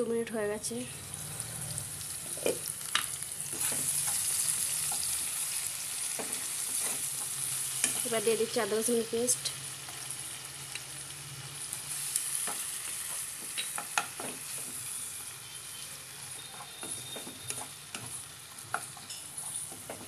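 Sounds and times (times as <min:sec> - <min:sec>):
food sizzling in hot oil: 0:00.4 - 0:20.0
spatula scraping pan: 0:06.2 - 0:08.0.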